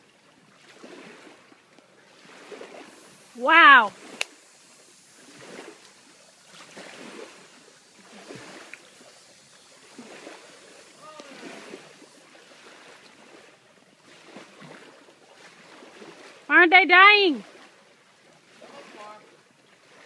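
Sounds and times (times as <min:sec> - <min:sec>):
lake water: 0:00.0 - 0:20.0
wind: 0:00.0 - 0:20.0
faint distant voices: 0:10.8 - 0:11.8.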